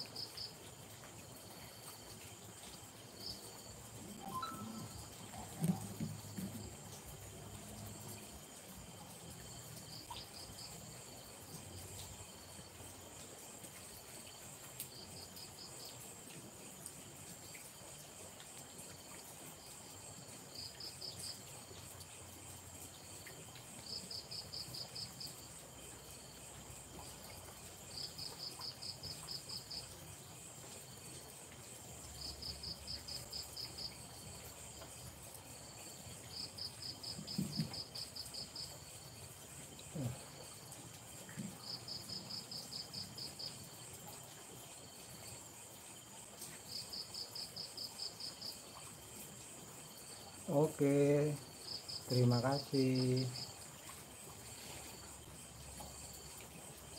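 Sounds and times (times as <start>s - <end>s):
cricket chirping: 0.0s - 56.9s
night insects whining: 0.1s - 13.2s, 19.6s - 56.9s.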